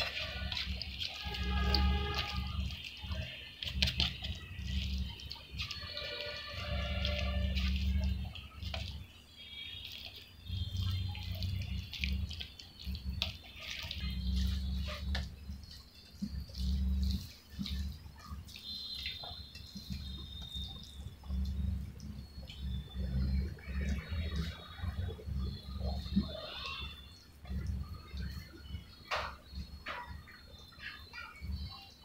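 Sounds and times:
rice squelching by hand: 0:00.0 - 0:32.0.

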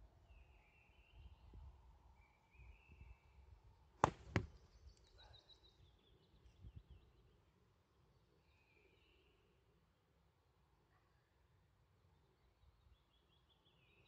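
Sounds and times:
slingshot cracks: 0:04.0 - 0:04.5.

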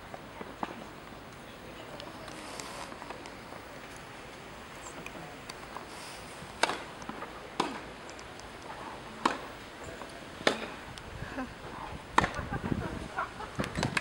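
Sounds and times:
tennis racket hitting ball: 0:06.6 - 0:07.8, 0:09.2 - 0:09.5.

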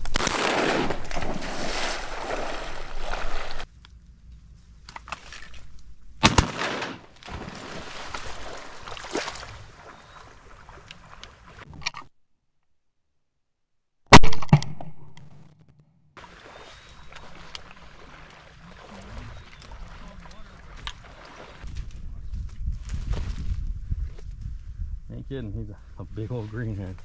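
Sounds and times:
shotgun shots: 0:00.0 - 0:01.4, 0:06.2 - 0:07.6
wind noise: 0:19.1 - 0:27.0.

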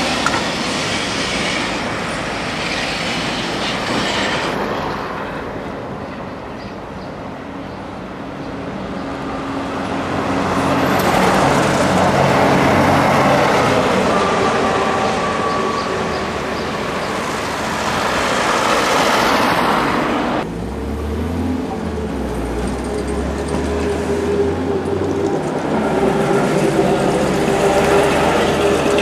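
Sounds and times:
street traffic: 0:00.0 - 0:29.0
bus driving past: 0:08.4 - 0:29.0
bus engine rumbling close by: 0:08.4 - 0:29.0.

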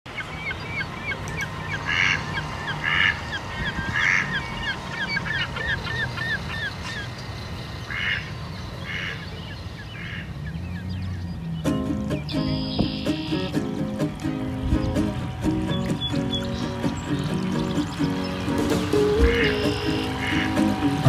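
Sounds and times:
repeated bird chirps: 0:00.1 - 0:13.6, 0:14.6 - 0:20.6
honk-like bird calls: 0:00.4 - 0:07.1, 0:07.9 - 0:09.3, 0:12.3 - 0:13.7, 0:18.3 - 0:21.0.

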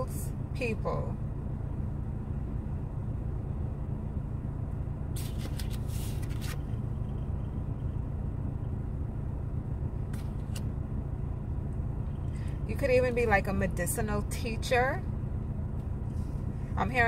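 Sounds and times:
steady low rumble: 0:00.0 - 0:17.0
cards rustling: 0:05.2 - 0:06.8.

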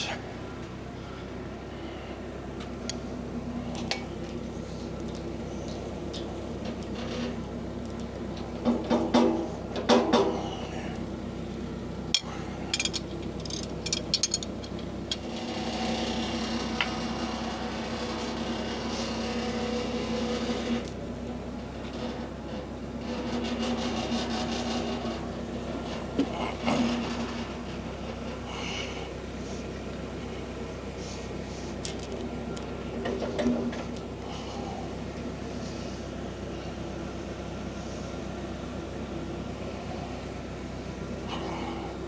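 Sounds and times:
steady hum: 0:00.0 - 0:42.0
metal knocks and clanks: 0:08.6 - 0:10.5.

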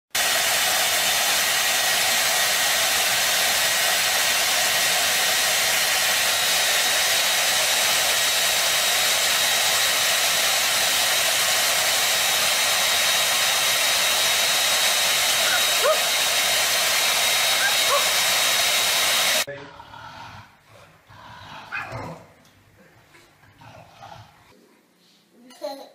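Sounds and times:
hair dryer running: 0:00.1 - 0:19.5.

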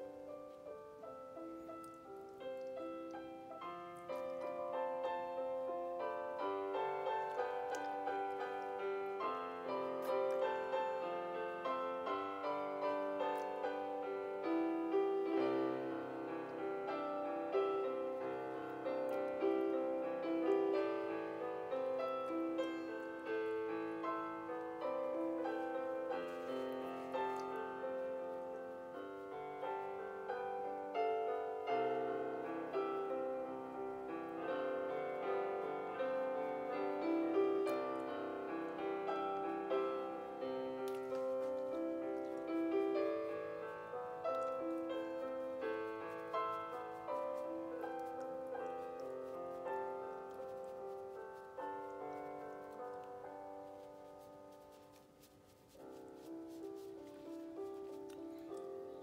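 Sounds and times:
instrumental piano music: 0:00.0 - 0:59.0.

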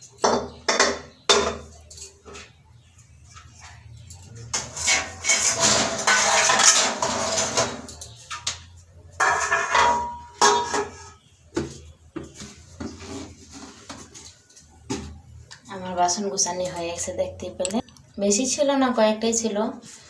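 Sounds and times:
metal dishes clattering: 0:00.0 - 0:02.6, 0:03.3 - 0:11.7.

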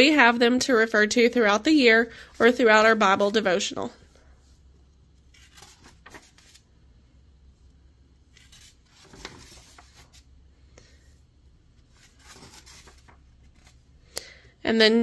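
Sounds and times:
paper pages rustling: 0:05.2 - 0:06.7, 0:08.2 - 0:10.3, 0:11.8 - 0:13.9.

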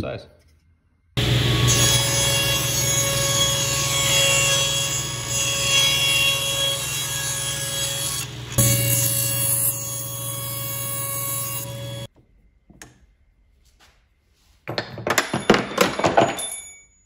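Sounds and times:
table saw cutting plywood: 0:01.2 - 0:12.1
clattering: 0:14.6 - 0:17.0.

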